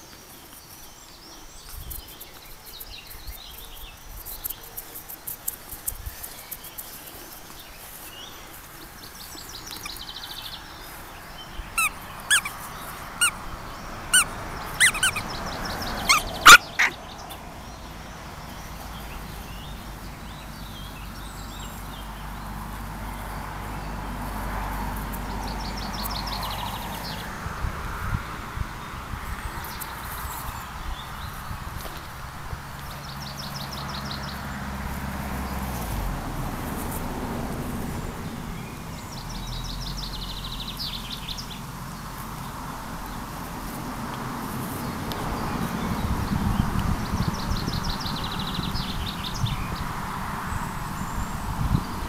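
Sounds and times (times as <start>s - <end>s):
puppy yipping: 11.8s - 12.6s, 14.1s - 15.2s, 16.0s - 17.0s
faint bird trills: 16.1s - 17.0s.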